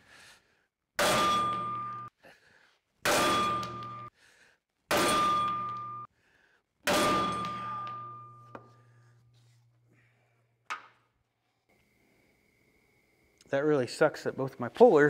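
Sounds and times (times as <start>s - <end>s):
sledgehammer striking metal: 1.0s - 2.1s, 3.0s - 4.1s, 4.9s - 6.1s, 6.8s - 8.6s.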